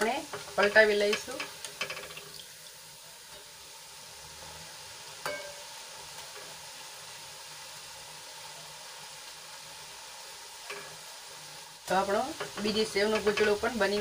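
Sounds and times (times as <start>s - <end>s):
food sizzling in hot oil: 0.0s - 14.0s
metal spoon clinking on pan: 0.3s - 2.3s, 5.2s - 5.7s, 10.7s - 11.0s, 12.3s - 13.7s.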